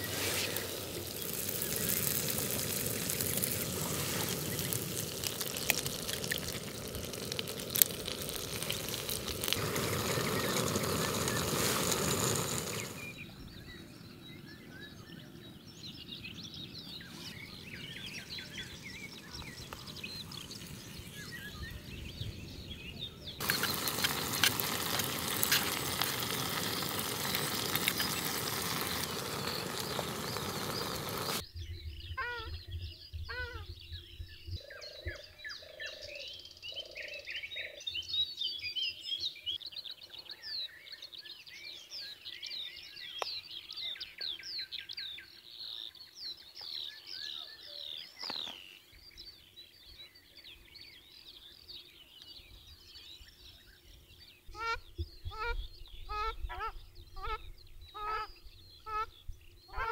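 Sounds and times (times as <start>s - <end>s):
food sizzling in pan: 0.0s - 13.2s, 23.4s - 31.4s
birds chirping: 0.0s - 59.9s
low repeated bird calls: 0.0s - 59.9s.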